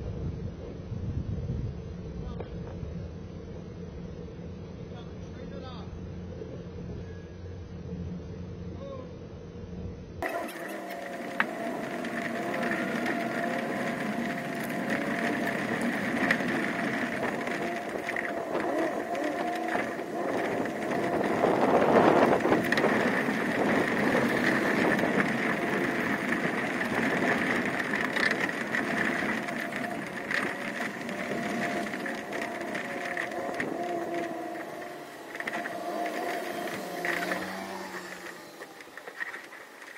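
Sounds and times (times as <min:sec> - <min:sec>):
pickup truck driving slowly: 0:10.2 - 0:39.9.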